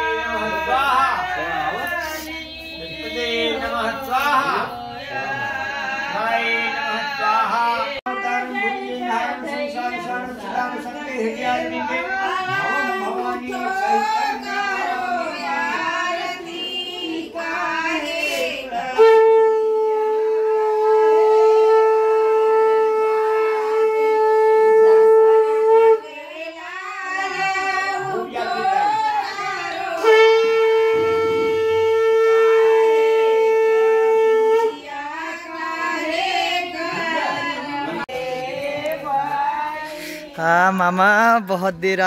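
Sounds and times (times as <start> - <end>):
people singing: 0.0 - 20.9, 21.8 - 42.0
conch shell blown: 18.0 - 26.2, 29.6 - 35.0.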